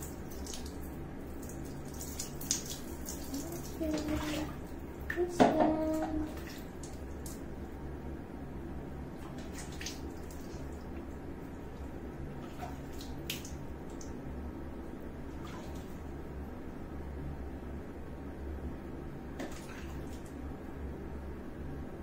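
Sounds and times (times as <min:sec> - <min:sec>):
small drips and taps: 0:00.0 - 0:07.5, 0:11.8 - 0:14.2
water pouring and splashing: 0:00.0 - 0:07.5, 0:09.2 - 0:11.1, 0:11.7 - 0:14.2, 0:15.3 - 0:16.1, 0:19.4 - 0:20.4
steady low hum: 0:00.0 - 0:22.0.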